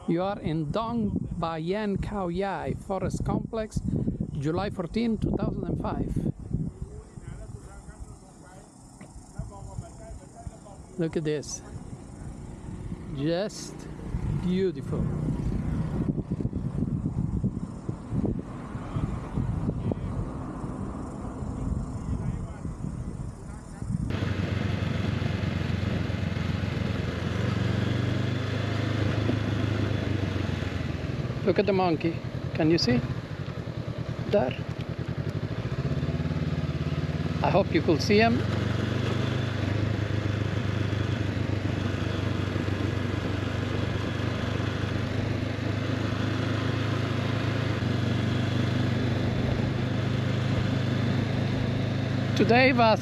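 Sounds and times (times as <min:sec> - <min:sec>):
wind and road noise: 0:00.0 - 0:53.0
motorcycle engine running: 0:02.0 - 0:53.0.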